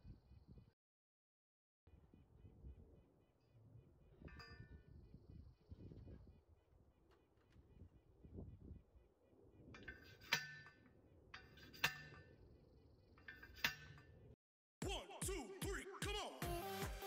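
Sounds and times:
metallic clang on fence post: 4.2s - 4.8s, 9.8s - 12.4s, 13.2s - 14.3s
music with a beat: 14.8s - 17.0s.

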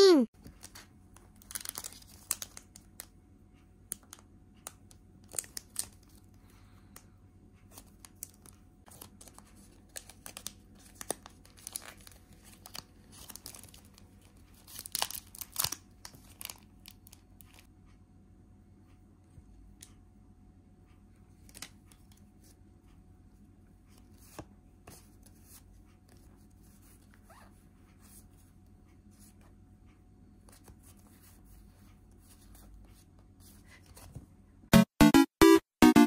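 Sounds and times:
foil pack crinkling: 1.4s - 3.1s, 8.1s - 17.6s.

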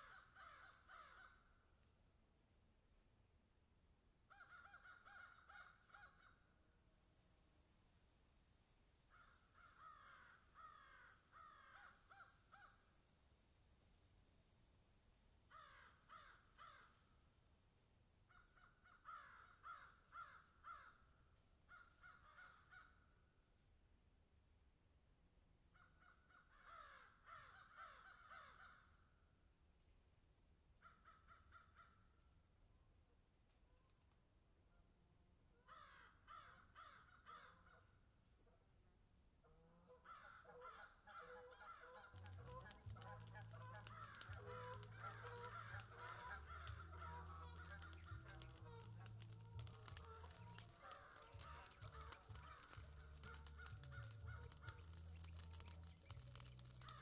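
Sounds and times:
crows cawing: 0.0s - 1.4s, 4.3s - 6.4s, 9.1s - 12.7s, 15.5s - 17.0s, 18.3s - 21.0s, 21.7s - 23.0s, 26.1s - 28.9s, 35.7s - 37.8s, 40.0s - 57.0s.

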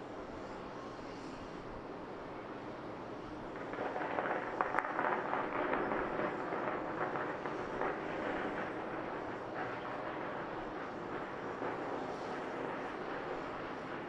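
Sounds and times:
firecrackers crackling: 3.2s - 14.0s.

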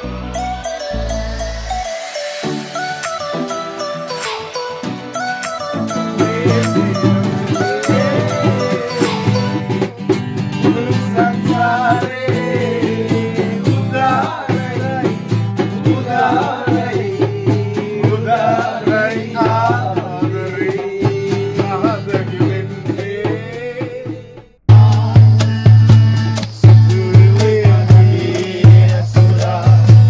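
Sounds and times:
acoustic guitar strumming: 0.0s - 30.0s
man singing: 6.1s - 25.6s, 26.6s - 30.0s.

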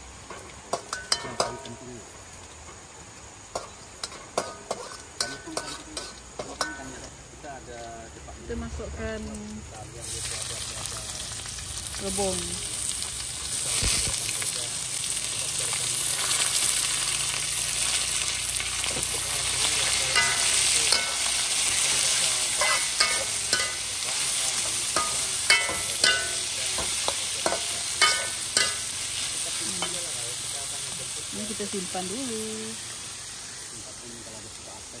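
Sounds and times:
food sizzling in hot oil: 0.0s - 35.0s
metal spatula scraping a wok: 3.6s - 6.8s.

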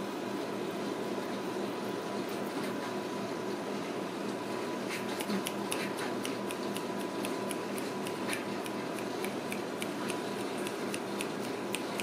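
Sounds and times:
room hum: 0.0s - 12.0s
quick light ticking: 5.2s - 12.0s.

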